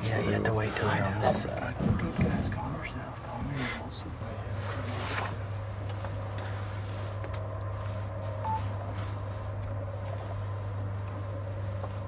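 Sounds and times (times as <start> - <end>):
steady low hum: 0.0 - 12.0
short high beep: 8.4 - 8.7
high steady tone: 8.4 - 8.8.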